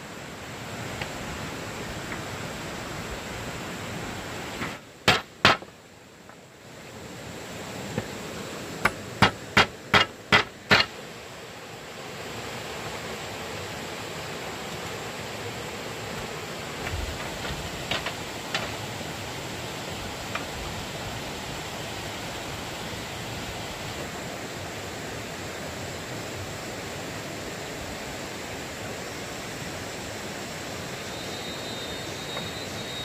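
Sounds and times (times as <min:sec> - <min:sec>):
steady hiss: 0:00.0 - 0:33.0
hand tool striking wood: 0:04.6 - 0:05.7, 0:08.8 - 0:11.0, 0:17.1 - 0:18.8.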